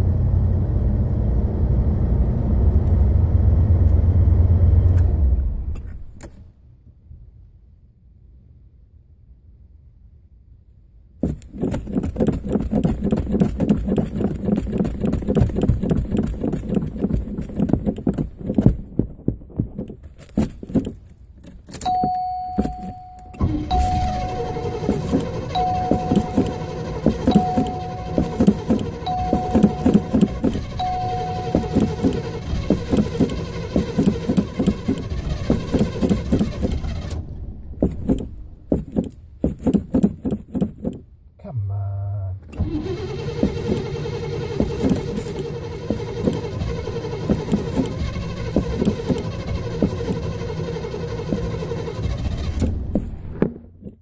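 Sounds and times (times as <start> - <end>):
car engine cranking: 11.2 - 54.0
dashboard warning chime: 21.8 - 35.0.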